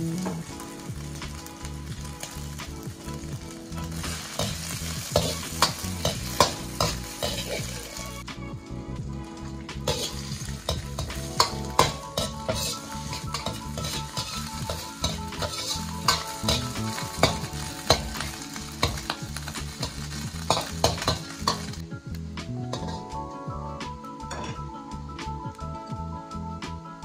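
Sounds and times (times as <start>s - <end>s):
food sizzling in oil in a wok: 0.0s - 8.3s, 9.4s - 23.2s
metal spoon scraping and clinking wok: 3.8s - 8.2s, 9.8s - 21.8s, 22.7s - 23.1s.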